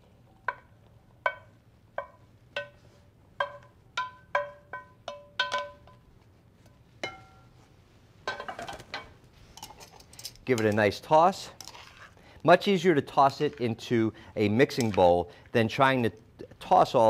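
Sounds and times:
wooden spoon tapping metal pan: 0.4s - 6.1s, 7.0s - 7.4s
vegetables scraped from pan: 11.6s - 12.2s.

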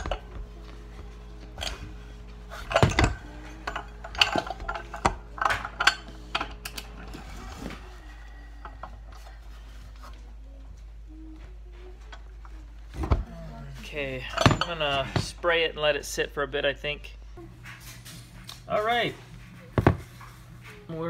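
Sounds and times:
metal tools clinking on metal: 2.5s - 6.9s, 14.0s - 15.3s.

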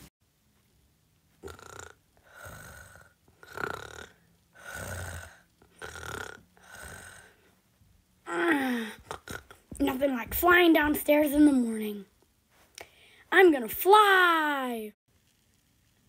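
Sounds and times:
person imitating snoring: 1.4s - 7.5s, 8.3s - 9.6s.

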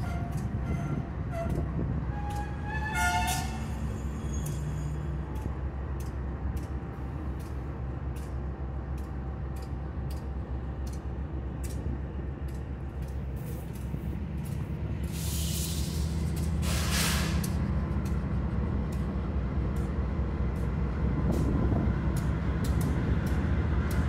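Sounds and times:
diesel locomotives idling: 0.0s - 24.0s
air brakes hissing: 15.0s - 17.6s.

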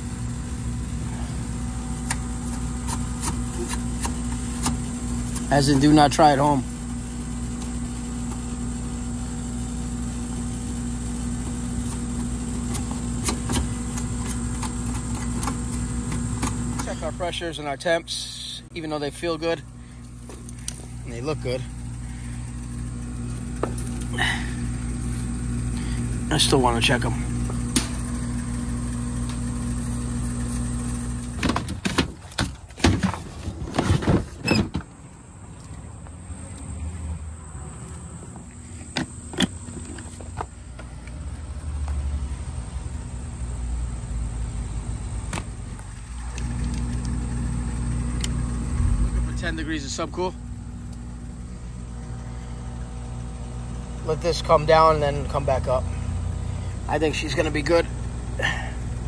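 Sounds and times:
condenser fan running: 0.0s - 34.2s, 35.0s - 59.0s
compressor humming: 0.0s - 59.0s
knocks and rustles: 31.4s - 34.9s.

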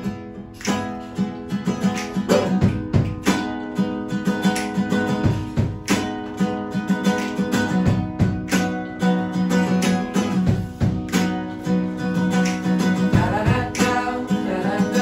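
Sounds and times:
acoustic guitars playing: 0.0s - 15.0s.

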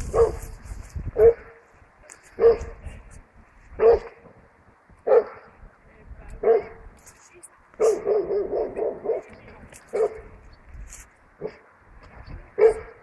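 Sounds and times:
dog barking: 0.1s - 0.5s, 1.2s - 1.6s, 2.4s - 2.8s, 3.8s - 4.2s, 5.1s - 5.5s, 6.4s - 6.8s, 7.8s - 10.3s, 11.4s - 11.6s, 12.6s - 13.0s.

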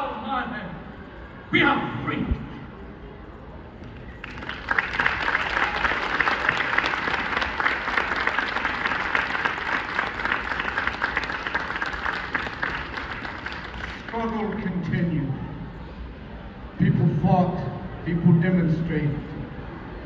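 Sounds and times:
audience applauding: 4.2s - 14.6s.

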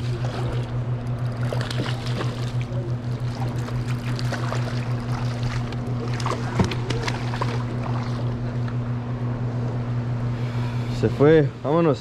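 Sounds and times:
outboard motor humming: 0.0s - 12.0s
fish splashing at surface: 1.3s - 8.4s.

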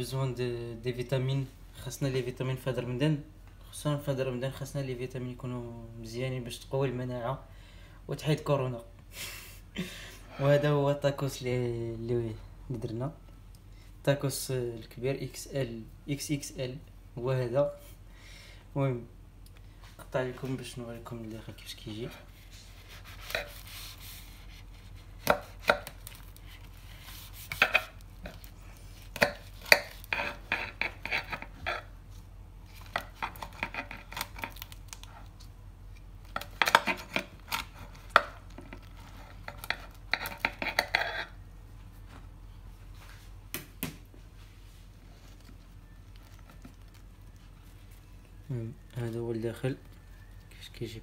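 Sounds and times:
knife sawing through crunchy crust: 22.2s - 27.9s, 29.0s - 31.9s.

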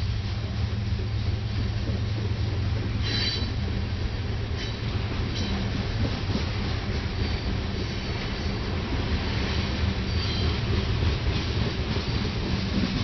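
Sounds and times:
train wheels rumbling on rail: 0.0s - 13.0s
high-pitched wheel squeals: 3.0s - 3.6s, 10.0s - 10.7s.

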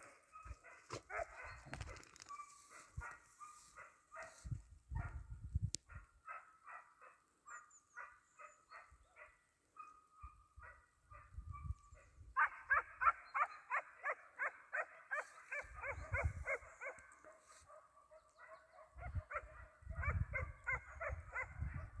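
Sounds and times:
hounds baying: 0.0s - 5.1s, 12.0s - 22.0s.

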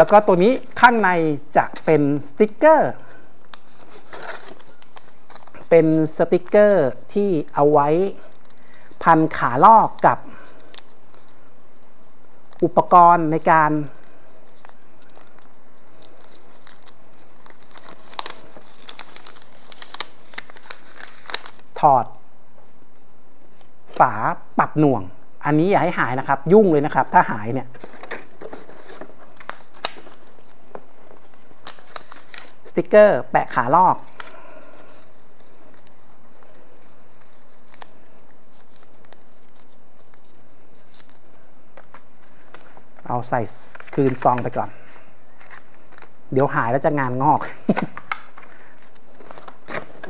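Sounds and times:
paper and plastic rustling: 0.0s - 1.0s, 3.0s - 21.8s, 27.7s - 32.7s, 33.9s - 46.2s, 47.4s - 50.0s
packaging crinkling: 3.1s - 6.6s, 9.8s - 12.6s, 13.7s - 21.8s, 27.7s - 32.7s, 34.0s - 46.3s, 47.5s - 50.0s.

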